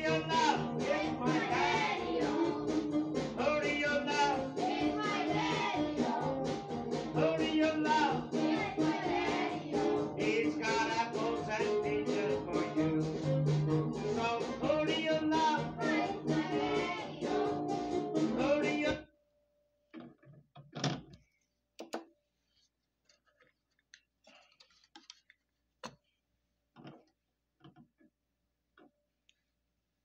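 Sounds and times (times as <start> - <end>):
guitar-led music from a turntable: 0.0 - 18.9.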